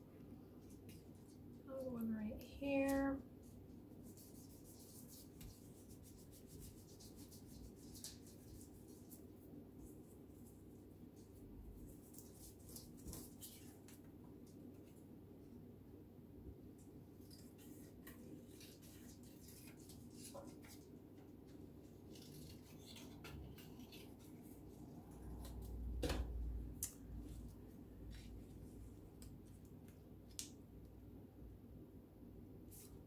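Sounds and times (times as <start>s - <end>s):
paper rustling: 17.2s - 25.8s
scissors cutting paper: 22.0s - 24.6s.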